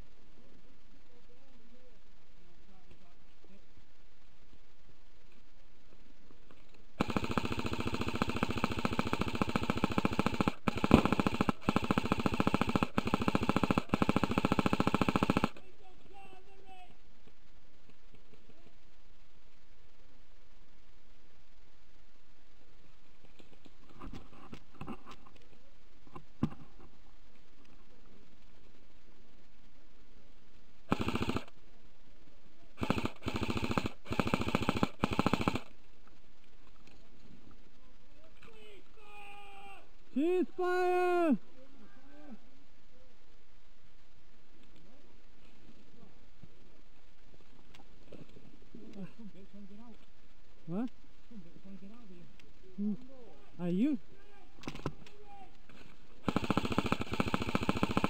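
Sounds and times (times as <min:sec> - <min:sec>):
airsoft gun firing full auto: 0:07.0 - 0:15.6, 0:30.9 - 0:31.5, 0:32.8 - 0:35.7, 0:56.2 - 0:58.0.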